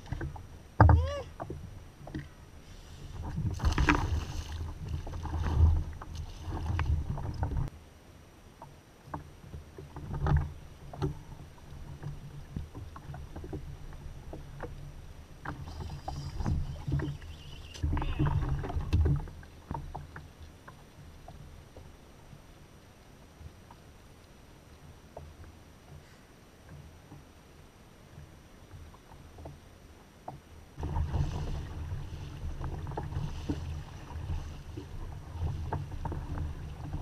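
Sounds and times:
water splashing: 0.0 - 7.7, 10.0 - 21.5, 30.8 - 37.0.

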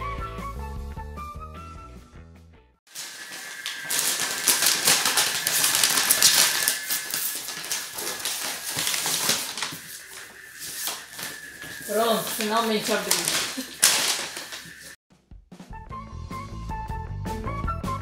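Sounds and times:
paper crinkling and tearing: 2.9 - 15.0.

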